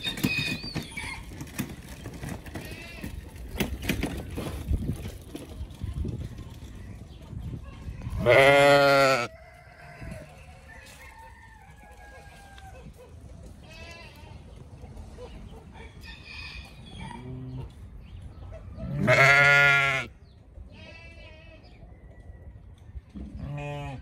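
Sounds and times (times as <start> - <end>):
sheep and lambs bleating: 8.1 - 9.3, 13.6 - 14.5, 18.8 - 21.8, 23.4 - 24.0.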